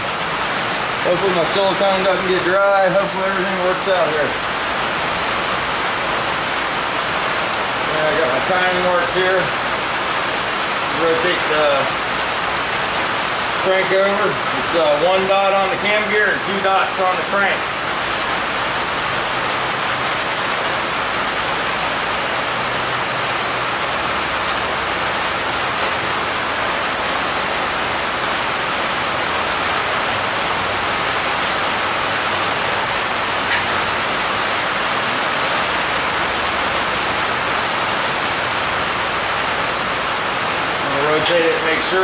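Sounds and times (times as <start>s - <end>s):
heavy rain falling: 0.0s - 42.0s.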